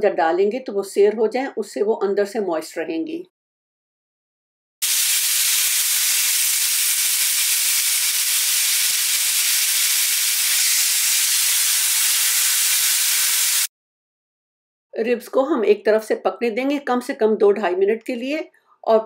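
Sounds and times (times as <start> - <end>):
meat sizzling on a grill pan: 4.8 - 13.7.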